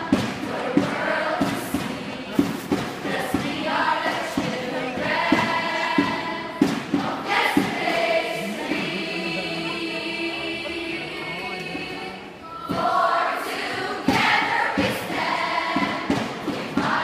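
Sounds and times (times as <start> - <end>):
girls chanting in unison: 0.0 - 2.5, 3.1 - 10.9, 11.7 - 17.0.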